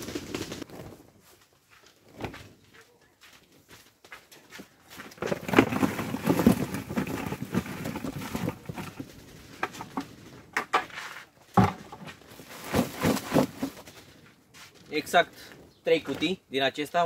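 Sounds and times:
cucumbers clattering into box: 0:05.0 - 0:10.0, 0:11.5 - 0:13.9.

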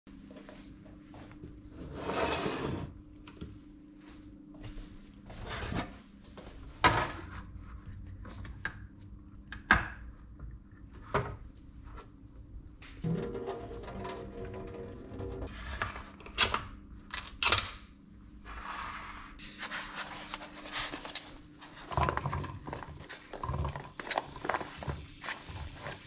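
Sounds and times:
frying pan scraping on hob: 0:01.8 - 0:02.9, 0:13.0 - 0:15.9.

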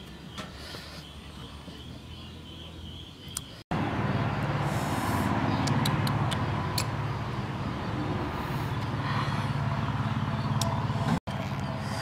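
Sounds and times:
motor running with low rumble: 0:03.8 - 0:12.0.

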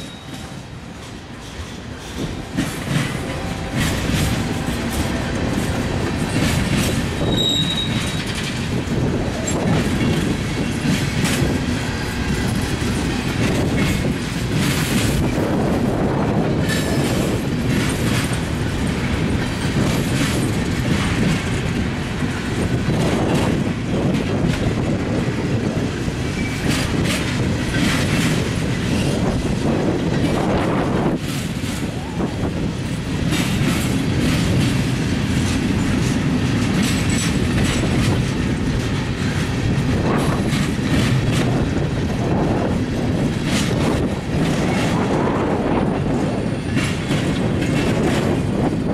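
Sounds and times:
clickety-clack over rail joints: 0:00.0 - 0:48.9
train wheels rumbling on rail: 0:00.0 - 0:48.9
high wheel squeals: 0:07.2 - 0:08.4.

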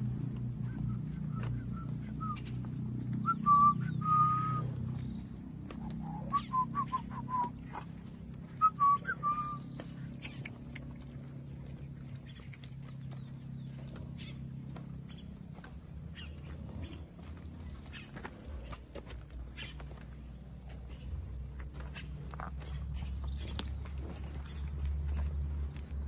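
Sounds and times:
steady low hum: 0:00.0 - 0:26.0
person whistling: 0:03.2 - 0:04.7, 0:06.1 - 0:07.5, 0:08.6 - 0:09.6.

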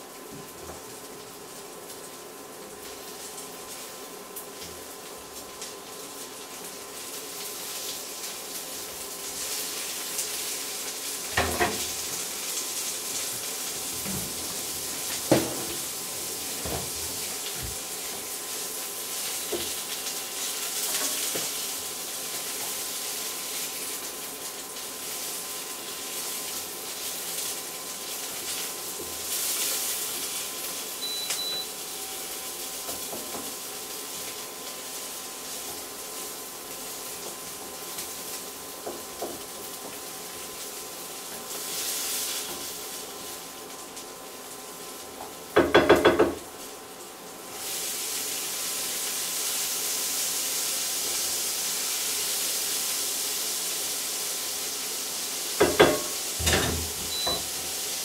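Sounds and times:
sausages and onion sizzling in pan: 0:00.0 - 0:58.0
wooden spatula knocking on pan: 0:45.6 - 0:46.4, 0:55.6 - 0:57.0.

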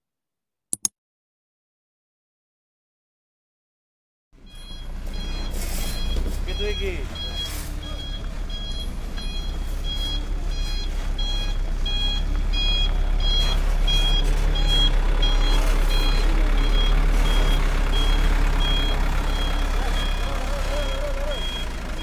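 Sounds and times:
reversing alarm beeping: 0:04.4 - 0:22.0
truck engine drone: 0:04.4 - 0:22.0.

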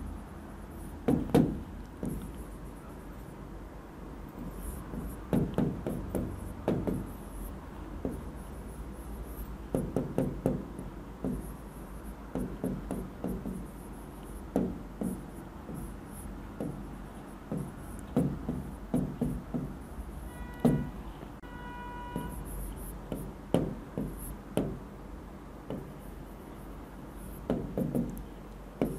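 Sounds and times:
taps and scrapes on glass: 0:01.0 - 0:02.8, 0:04.4 - 0:07.2, 0:08.0 - 0:08.6, 0:09.4 - 0:19.9, 0:20.5 - 0:21.0, 0:22.1 - 0:24.8, 0:25.7 - 0:26.1, 0:27.3 - 0:28.9.

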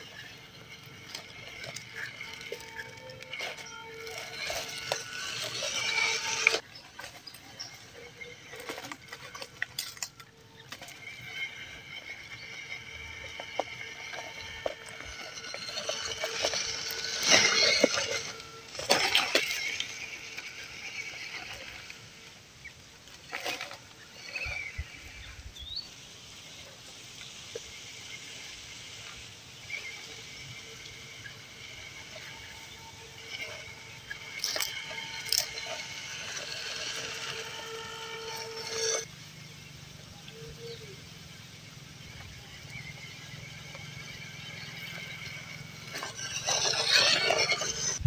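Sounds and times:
electric motor whining: 0:00.0 - 0:25.7, 0:27.6 - 0:48.0.

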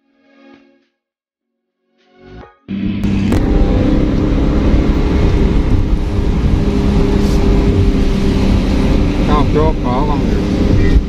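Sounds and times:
vehicle engine and road noise: 0:02.7 - 0:11.0.

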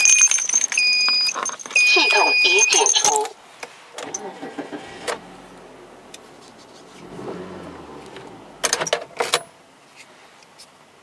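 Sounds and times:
car keys jangling: 0:00.0 - 0:03.4, 0:04.0 - 0:05.2, 0:08.1 - 0:09.6.

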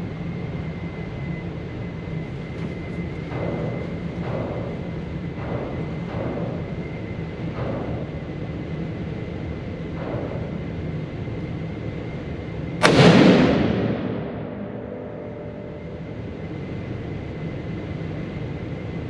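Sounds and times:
background hum: 0:00.0 - 0:19.0
rifle shot echoing indoors: 0:12.8 - 0:16.5.

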